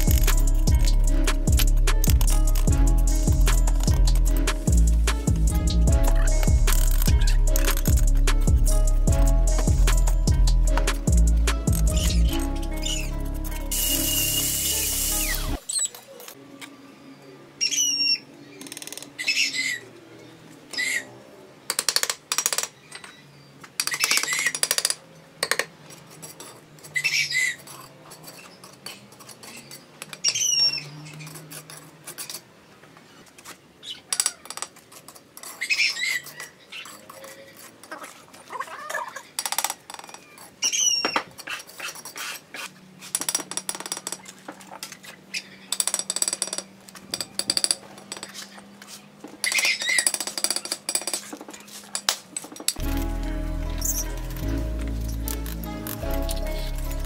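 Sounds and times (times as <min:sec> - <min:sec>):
high squeaks: 0:11.7 - 0:16.0, 0:52.8 - 0:57.0
trowel scraping on bricks: 0:25.8 - 0:32.5, 0:34.6 - 0:38.5, 0:40.4 - 0:43.4.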